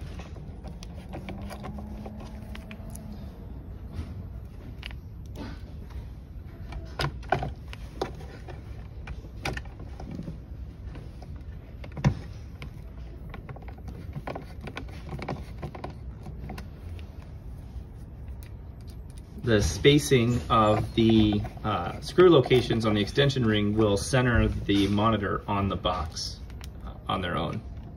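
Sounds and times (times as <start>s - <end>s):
metal clicks and scrapes: 0.0s - 3.2s.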